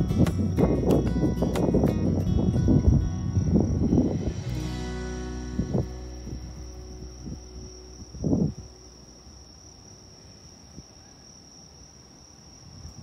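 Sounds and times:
faint low rumble: 0:00.0 - 0:10.2
crickets trilling: 0:00.0 - 0:13.0.

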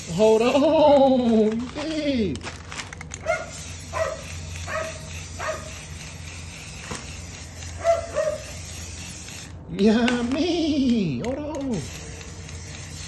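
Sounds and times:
dog yapping: 0:03.2 - 0:05.8, 0:07.8 - 0:08.5
aerosol spray hiss: 0:03.5 - 0:09.5, 0:11.7 - 0:13.0.

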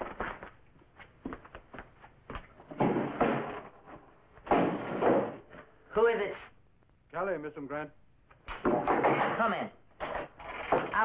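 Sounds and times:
wood scraping: 0:10.0 - 0:11.0.

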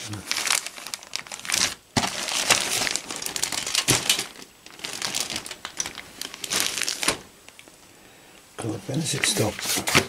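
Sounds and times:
plastic bags crinkling: 0:00.0 - 0:07.8.

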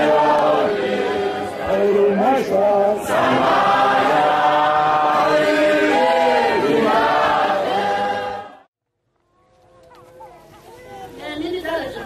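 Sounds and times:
choir singing long notes: 0:00.0 - 0:08.7.

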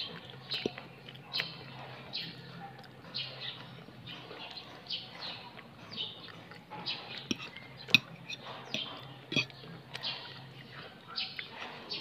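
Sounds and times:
small bird chirping: 0:03.1 - 0:12.0
metal fork clinking on plate: 0:07.2 - 0:09.6.

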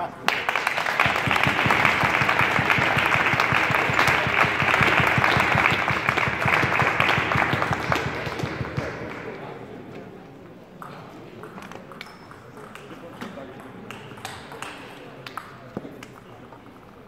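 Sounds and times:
audience applauding: 0:00.3 - 0:09.5.

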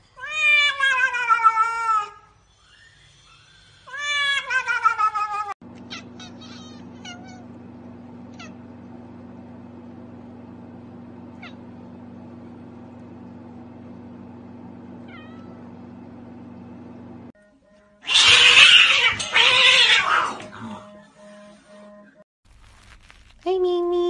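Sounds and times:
cat meowing: 0:00.2 - 0:02.2, 0:03.9 - 0:07.4, 0:15.0 - 0:15.6, 0:18.1 - 0:20.5
steady low hum: 0:05.6 - 0:17.4.

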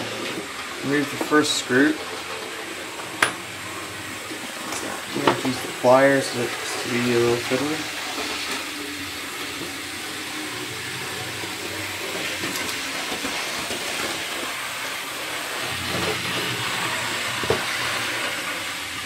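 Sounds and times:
steady hiss: 0:00.3 - 0:12.0.

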